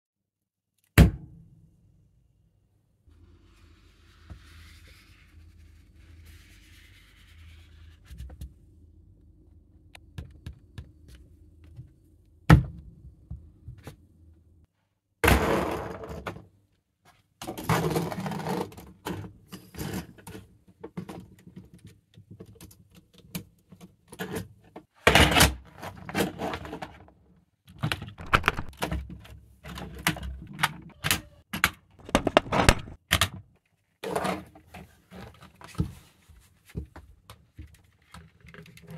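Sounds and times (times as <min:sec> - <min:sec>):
plastic parts clicking: 0:28.2 - 0:28.7, 0:32.0 - 0:33.0
paper map rustling: 0:28.2 - 0:28.8, 0:32.0 - 0:33.0.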